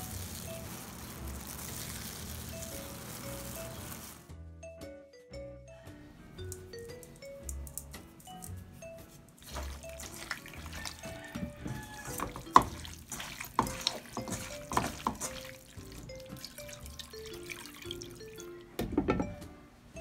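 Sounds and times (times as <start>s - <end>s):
light background music: 0.0s - 20.0s
hand squelching raw meat: 9.4s - 17.0s.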